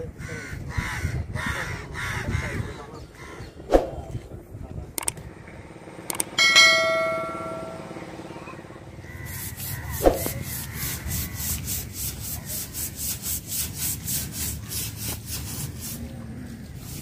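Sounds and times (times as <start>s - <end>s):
metallic ringing tone: 6.3s - 8.8s.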